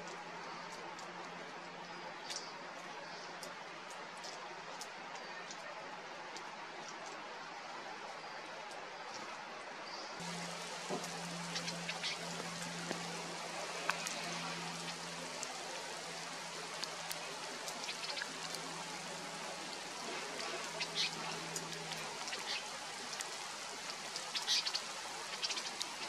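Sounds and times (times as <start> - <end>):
outdoor hiss: 7.2 - 26.0
bird chirps: 10.2 - 13.2
low steady hum: 10.2 - 22.5.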